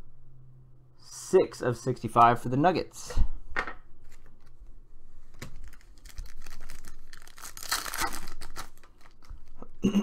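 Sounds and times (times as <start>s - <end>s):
foil pack clicking and rustling: 5.6s - 9.6s
foil wrapper tearing: 5.6s - 9.6s.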